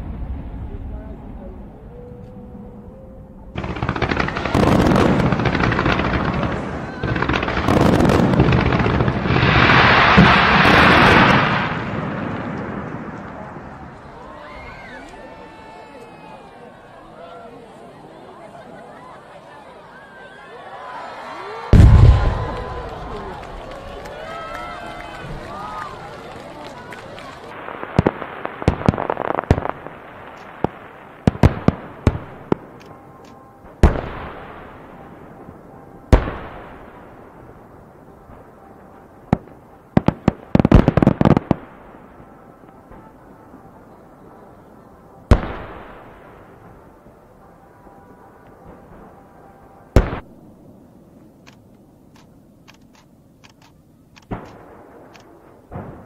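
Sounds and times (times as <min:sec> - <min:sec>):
fireworks bursts and booms: 0:03.5 - 0:14.3, 0:21.7 - 0:53.6, 0:54.2 - 0:56.0
heavy firework booms: 0:03.6 - 0:14.0, 0:21.7 - 0:23.4, 0:27.6 - 0:32.8, 0:49.9 - 0:50.6, 0:54.3 - 0:56.0
fireworks crackling hiss: 0:24.2 - 0:32.1.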